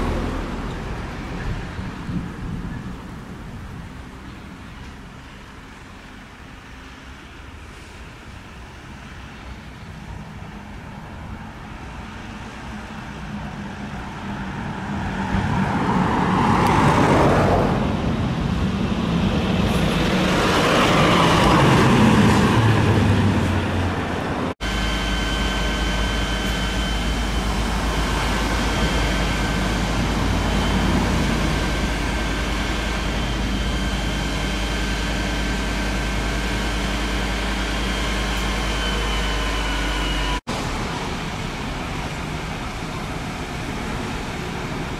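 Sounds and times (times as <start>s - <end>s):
road traffic passing: 0.0s - 44.9s
low engine rumble: 17.4s - 44.9s
faint steady whine: 24.6s - 44.9s.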